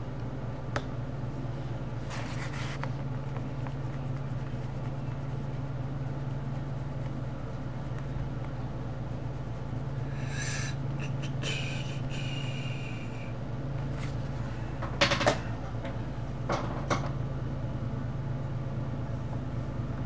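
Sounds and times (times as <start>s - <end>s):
steady low hum: 0.0s - 20.0s
colouring on paper scratching: 2.1s - 8.3s, 9.0s - 12.2s.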